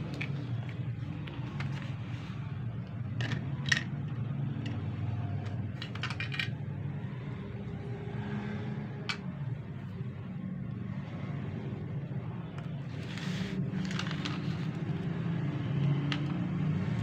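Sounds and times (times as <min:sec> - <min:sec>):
low background hum: 0:00.0 - 0:17.0
plastic parts clicking: 0:03.0 - 0:06.6.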